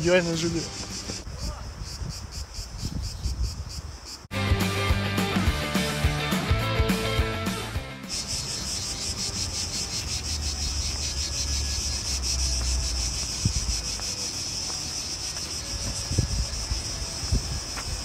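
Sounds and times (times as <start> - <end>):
insects chirring: 0.0 - 4.3, 8.0 - 18.0.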